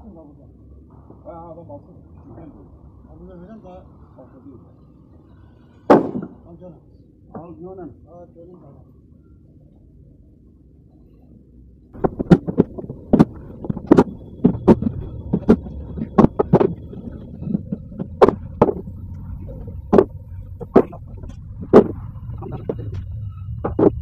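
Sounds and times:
low steady hum: 0.0 - 24.0
wooden blocks knocking and clattering: 5.9 - 6.4, 12.0 - 24.0.

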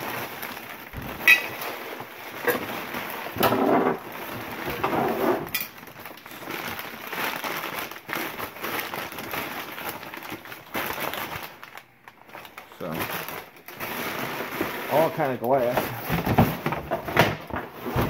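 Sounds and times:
paper and packing rustling: 0.0 - 18.0.

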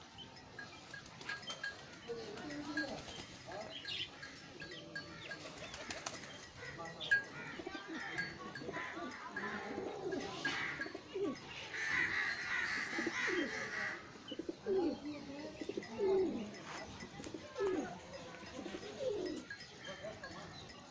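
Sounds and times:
pigeons cooing: 0.8 - 20.9.

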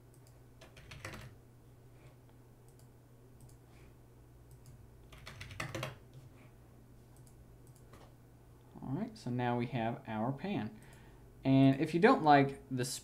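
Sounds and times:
faint low hum: 0.0 - 13.0
computer keyboard typing: 0.1 - 1.4, 4.5 - 6.0.

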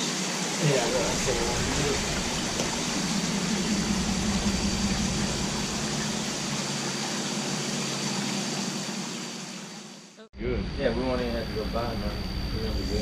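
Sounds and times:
rushing water in tank: 0.0 - 10.2
pump hum: 0.0 - 13.0.

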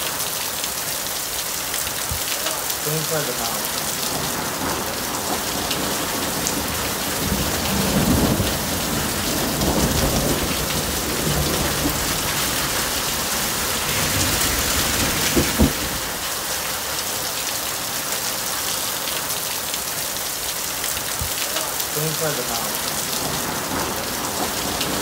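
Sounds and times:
heavy rain pouring: 0.0 - 25.0
low thunder rumble: 3.7 - 16.2, 22.8 - 25.0.

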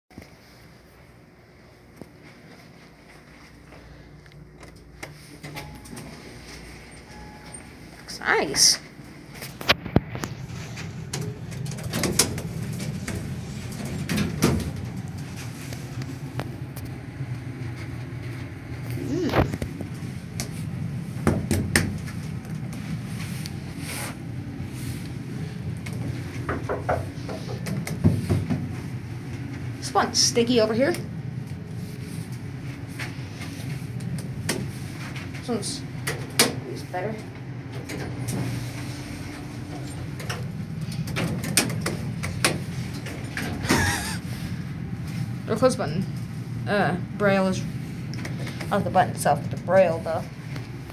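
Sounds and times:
elevator hum: 0.2 - 50.9
elevator clicks and clunks: 4.6 - 7.8, 9.6 - 18.8, 33.9 - 44.2.

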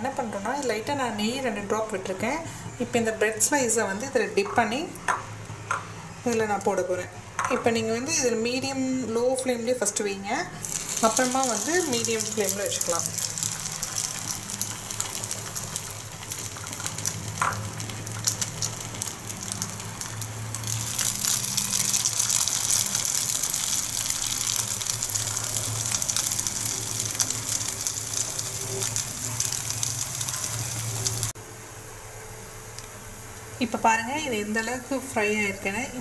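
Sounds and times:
bread sizzling in a pan: 10.6 - 31.4.

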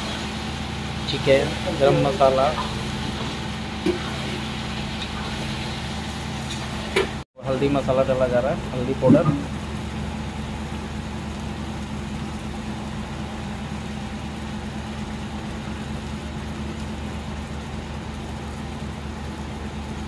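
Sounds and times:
chicken sizzling in a pan: 0.0 - 7.2
low machine hum: 0.0 - 20.0.

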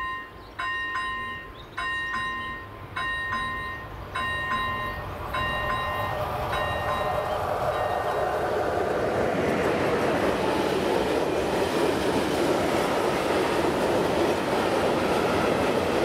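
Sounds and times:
level crossing warning bell: 0.0 - 8.3
freight train rumbling: 0.0 - 16.0.

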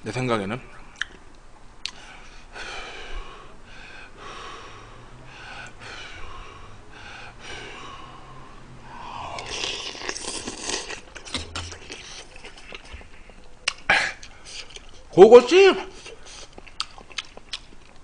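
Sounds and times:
man breathing heavily: 1.9 - 9.7
man slurping from spoon: 9.1 - 12.9.

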